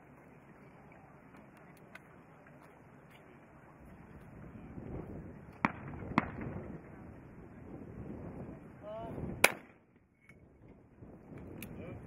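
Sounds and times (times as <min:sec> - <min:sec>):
shotgun shots: 0:09.4 - 0:09.8.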